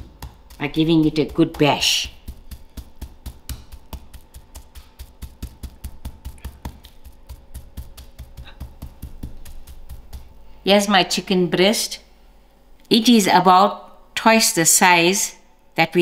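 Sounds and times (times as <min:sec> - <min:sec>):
pestle pounding meat on board: 0:00.0 - 0:10.5.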